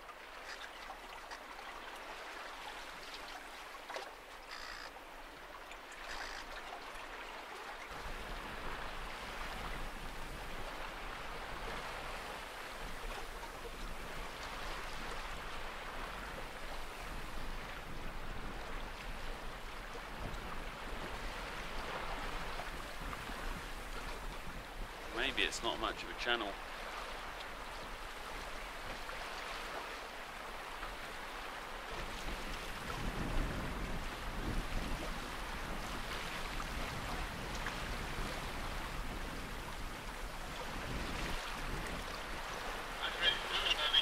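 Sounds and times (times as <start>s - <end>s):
water splashing along a hull: 0.0s - 44.0s
wind rumble on microphone: 7.9s - 25.5s, 26.6s - 44.0s.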